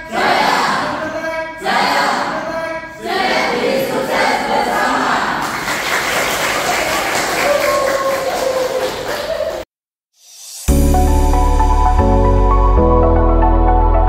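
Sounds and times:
young people chanting: 0.0s - 5.6s
people clapping and cheering: 4.7s - 9.7s.

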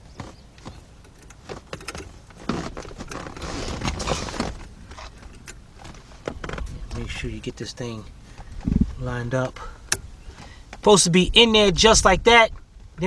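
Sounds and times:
scraping and rustling: 0.2s - 9.6s.

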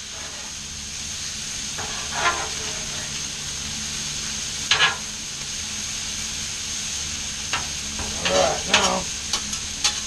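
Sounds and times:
metal spatulas scraping griddle: 0.0s - 0.5s, 1.8s - 3.2s, 8.0s - 9.0s
vegetables sizzling on griddle: 0.0s - 10.0s.

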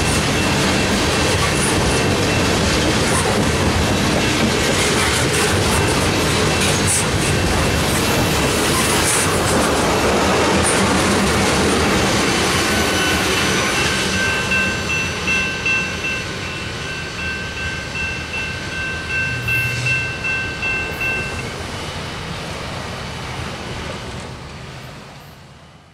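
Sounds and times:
freight train wheels clicking: 0.0s - 22.5s
steady high ringing tone: 12.7s - 21.6s.

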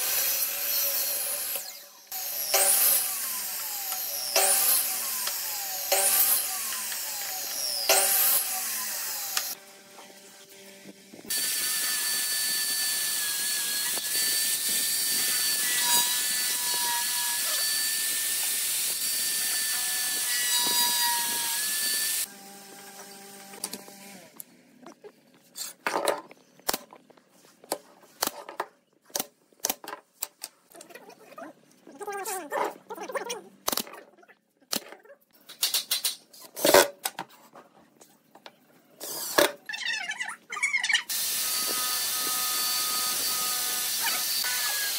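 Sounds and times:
drill boring into wood: 0.0s - 9.6s, 11.3s - 23.6s, 41.1s - 44.9s
saw blade striking wood: 2.4s - 8.5s
mitre saw blade whining: 11.3s - 24.2s.

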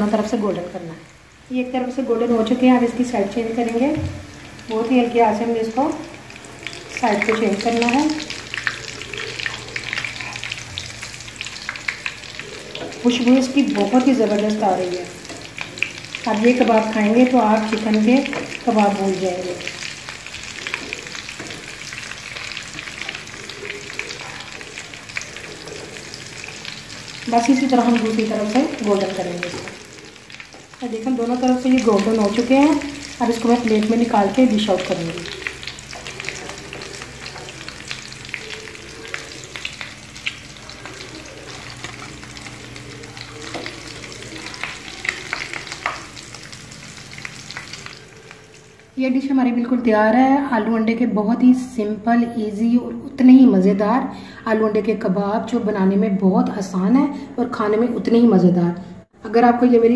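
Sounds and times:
food sizzling in hot oil: 0.0s - 49.0s.

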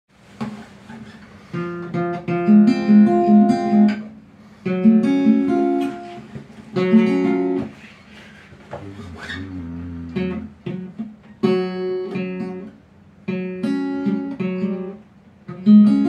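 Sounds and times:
acoustic guitar riff: 8.7s - 12.6s.

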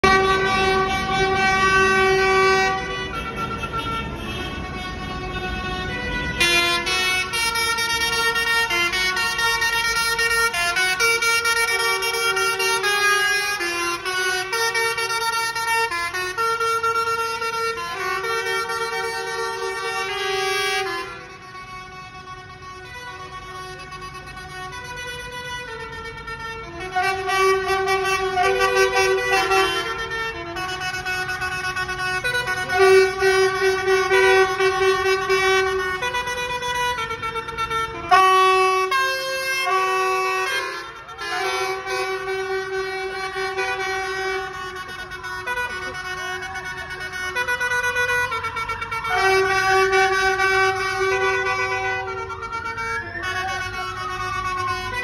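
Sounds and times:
diesel engines running: 0.0s - 55.0s
tractor horns honking: 0.0s - 55.0s.

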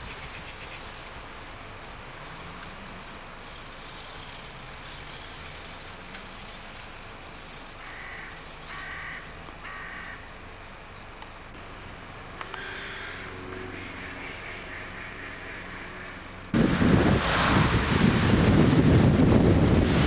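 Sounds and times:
outdoor background hum: 0.0s - 20.0s
crow cawing: 7.8s - 10.3s, 12.5s - 16.2s.

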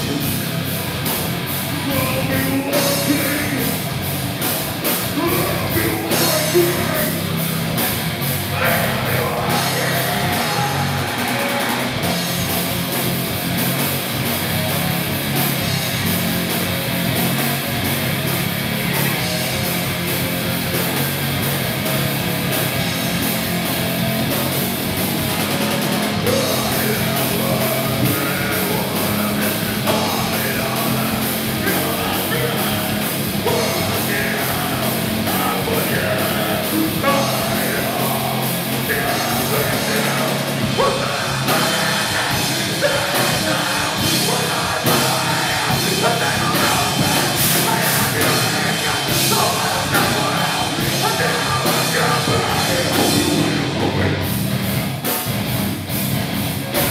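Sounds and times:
bass: 0.0s - 56.9s
distorted electric guitar: 0.0s - 56.9s
drum kit: 0.0s - 56.9s
shouted vocals: 8.4s - 12.2s, 26.2s - 54.3s.

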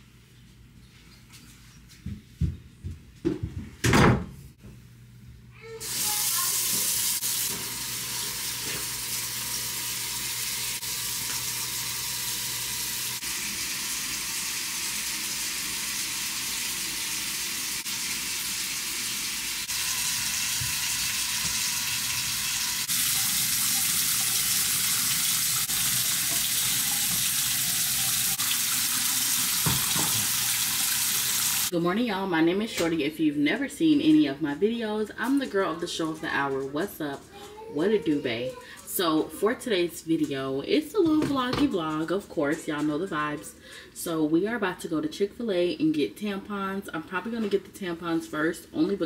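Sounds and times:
tap water running into sink: 5.8s - 31.7s.

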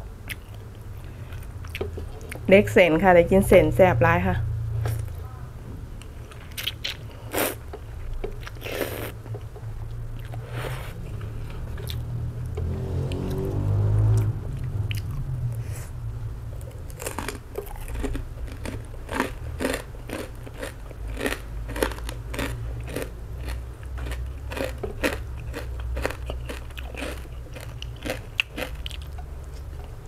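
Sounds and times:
steady low hum: 0.0s - 30.0s
crunching pork rind: 16.7s - 29.7s.

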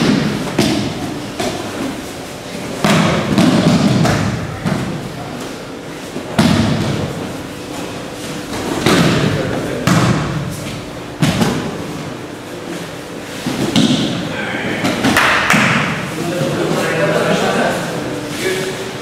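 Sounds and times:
bodies thudding on mats: 6.1s - 12.2s, 13.2s - 16.0s.

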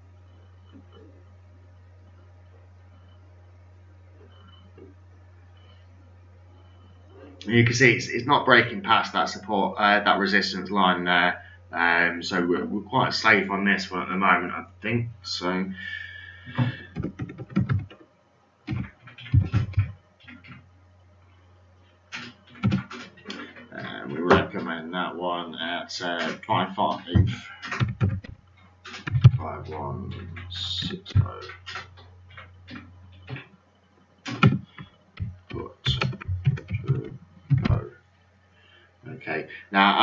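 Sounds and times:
steady low hum: 0.0s - 40.0s
computer keyboard typing: 16.5s - 18.0s, 18.7s - 20.6s, 22.1s - 23.7s, 26.2s - 33.5s, 34.2s - 37.9s
scratching and knocking noises: 16.5s - 18.1s, 18.7s - 20.6s, 26.1s - 33.6s, 34.3s - 37.9s.

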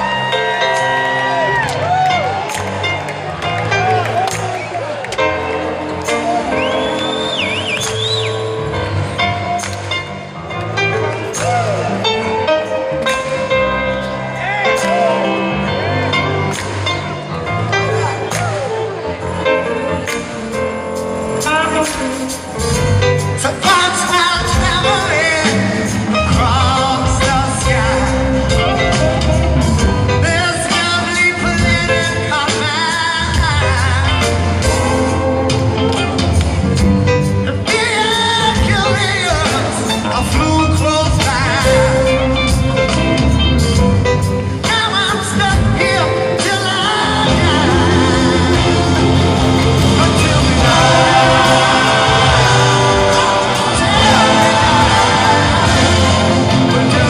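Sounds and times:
live rock band with singing: 0.0s - 57.0s
person singing lead vocals: 21.3s - 29.4s, 44.6s - 57.0s.

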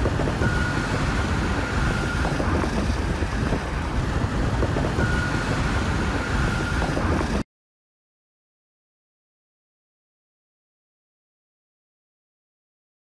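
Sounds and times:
wind buffeting microphone: 0.0s - 7.4s.

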